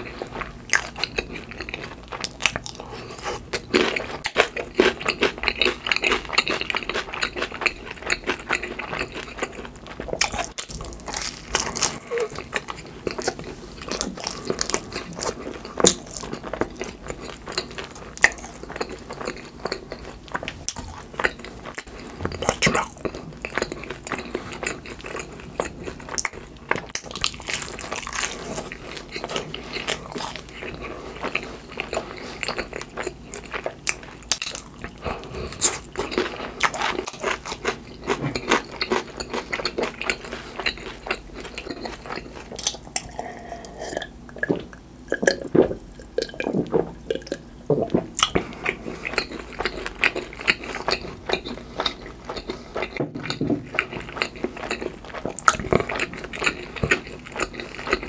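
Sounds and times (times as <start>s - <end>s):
chewing food: 0.0s - 58.0s
wet mouth sounds: 42.5s - 52.6s.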